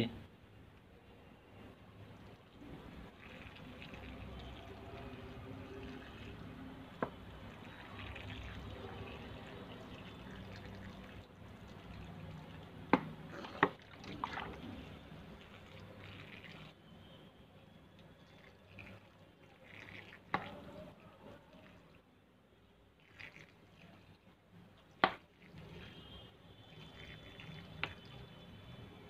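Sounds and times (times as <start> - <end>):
water trickling onto soil: 2.2 - 16.8, 18.0 - 22.0, 23.0 - 24.2, 26.7 - 28.3.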